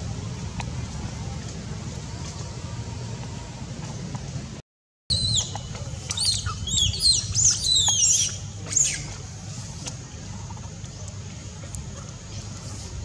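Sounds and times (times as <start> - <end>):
steady low rumble: 0.0 - 13.0
baby monkey squealing: 6.1 - 9.1.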